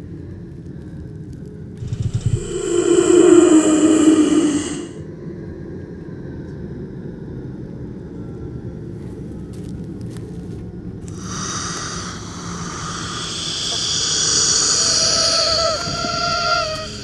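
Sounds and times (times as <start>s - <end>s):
downward sliding tone: 1.8s - 5.0s
low rumbling drone: 1.8s - 5.1s.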